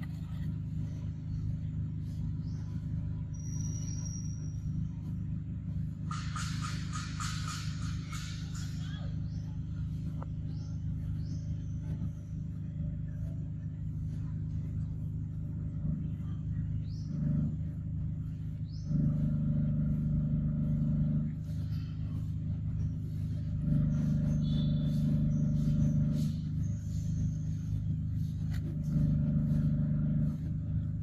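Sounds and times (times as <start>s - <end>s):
low motor hum: 0.0s - 31.0s
faint high chirps: 0.1s - 6.1s, 20.8s - 29.8s.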